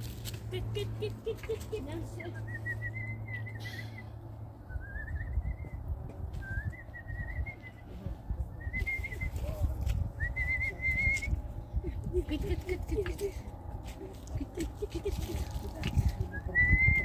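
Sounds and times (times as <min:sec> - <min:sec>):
low rumbling noise: 0:00.0 - 0:17.0
whistling in warbling phrases: 0:02.3 - 0:04.1, 0:10.2 - 0:11.4.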